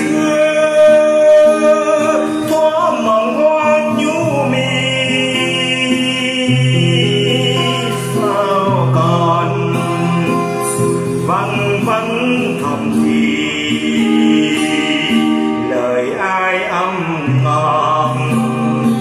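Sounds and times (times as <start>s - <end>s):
person singing: 0.0s - 19.0s.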